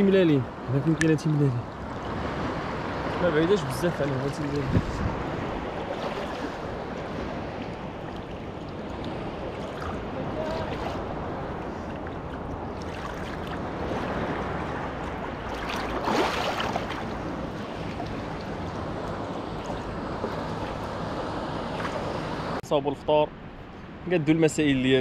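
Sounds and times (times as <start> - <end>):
water sloshing and lapping: 0.9 - 22.3
water splashing: 1.0 - 22.2
wind on microphone: 1.9 - 21.0.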